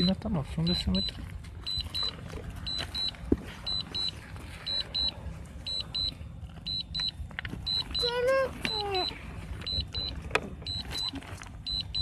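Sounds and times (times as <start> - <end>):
low background noise: 0.0 - 12.0
remote controller beeping: 0.0 - 12.0.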